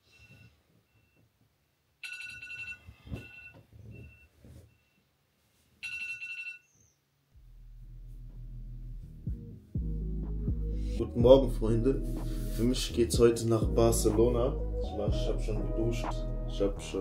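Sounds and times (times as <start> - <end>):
music with deep bass: 7.4 - 17.0.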